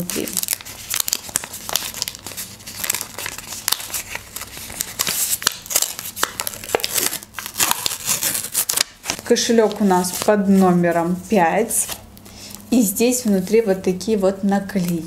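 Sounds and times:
paper rustling and crinkling: 0.0 - 11.1.

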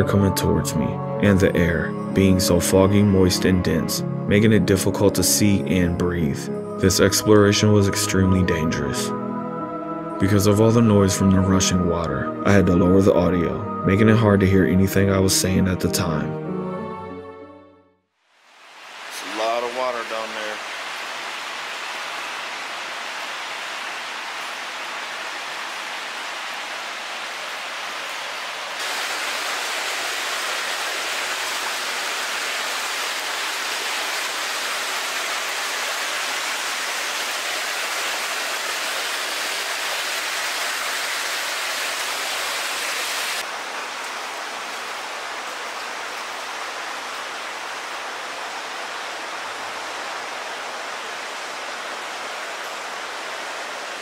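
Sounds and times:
floodwater rushing through tunnel: 18.3 - 54.0.

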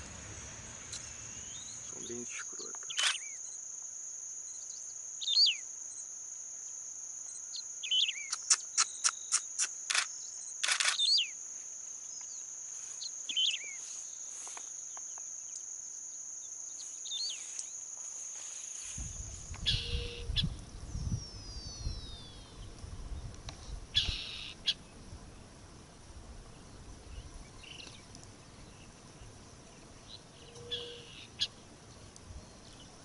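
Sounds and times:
low rumbling noise: 0.0 - 2.0
high insect trill: 0.0 - 33.0
bird chirps: 0.8 - 3.6, 4.5 - 6.1, 7.3 - 11.4, 13.0 - 14.0, 16.7 - 17.8, 19.6 - 22.7, 24.0 - 24.8, 30.0 - 31.6
sharp clicks: 2.7 - 3.3, 8.2 - 11.2.

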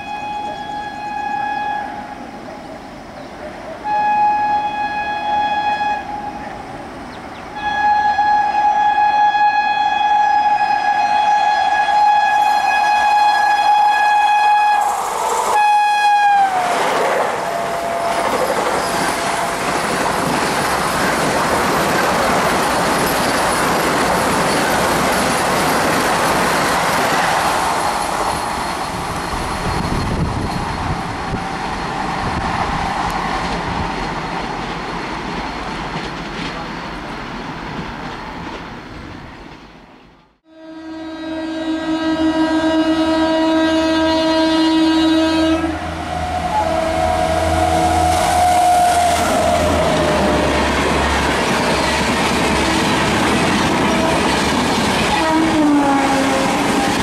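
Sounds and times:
train horn blasts: 0.0 - 2.2, 3.8 - 6.5, 7.5 - 19.8, 40.4 - 53.1, 55.0 - 57.0
train rushing and clattering past: 12.4 - 40.1, 45.4 - 57.0.

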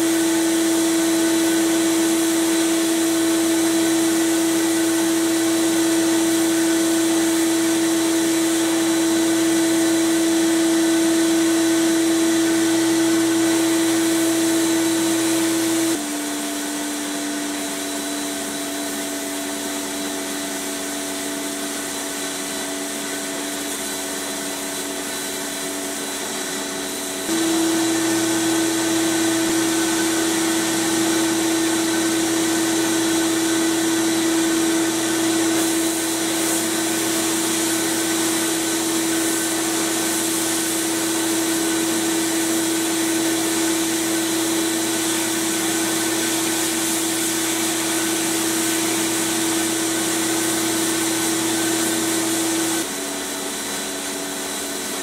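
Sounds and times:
motor hum: 27.3 - 36.5.

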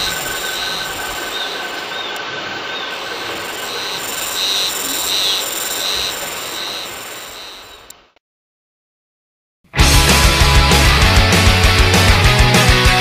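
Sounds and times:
cicadas calling: 0.0 - 8.0.

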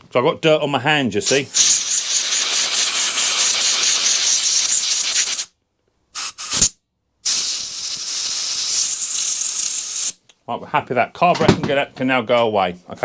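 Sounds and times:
compressed air blow gun hissing: 1.3 - 5.5, 6.2 - 10.2.

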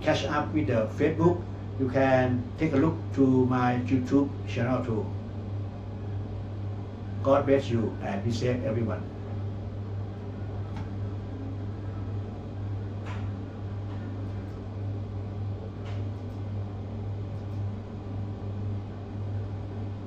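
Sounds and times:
steady low hum: 0.0 - 20.0
faint clicks: 17.3 - 17.7.

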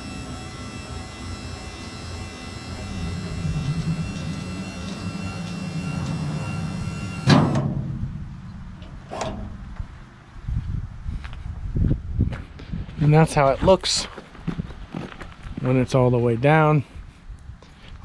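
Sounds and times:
electric motor whining: 0.0 - 7.7
metal arm clunk: 4.1 - 9.7.

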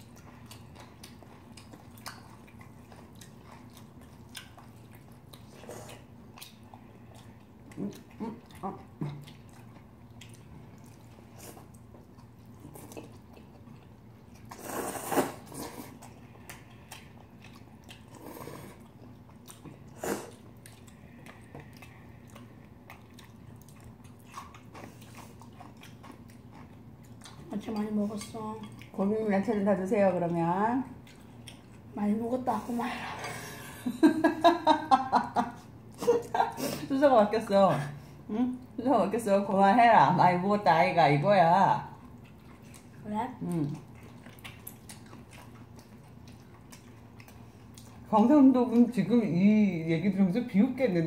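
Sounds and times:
chewing and slurping noodles: 0.0 - 29.0, 42.0 - 48.1.

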